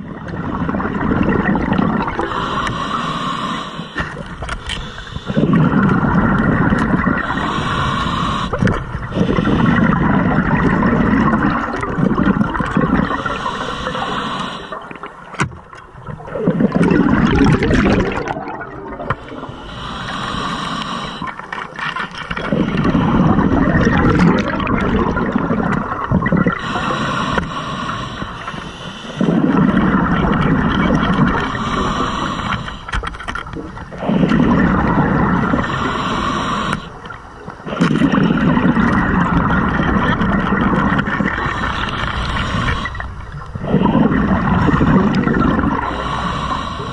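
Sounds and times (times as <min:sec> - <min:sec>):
exhaled bubbles gurgling: 0:00.0 - 0:46.9
regulator hiss on inhale: 0:02.2 - 0:06.1, 0:07.2 - 0:10.0, 0:13.0 - 0:15.1, 0:19.1 - 0:21.6, 0:26.5 - 0:29.6, 0:31.0 - 0:33.3, 0:35.4 - 0:38.5, 0:41.0 - 0:43.2, 0:44.6 - 0:46.9.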